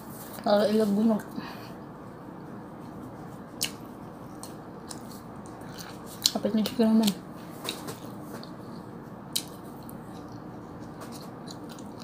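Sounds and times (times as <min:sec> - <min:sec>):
chewing: 0:03.6 - 0:06.4, 0:07.0 - 0:12.0.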